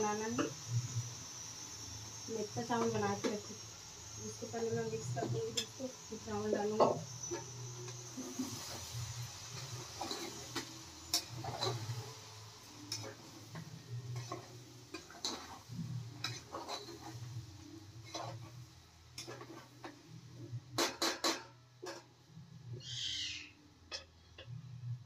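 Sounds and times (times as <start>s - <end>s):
metal spoon scraping a pot: 9.6s - 11.9s, 16.2s - 17.3s, 18.0s - 18.5s.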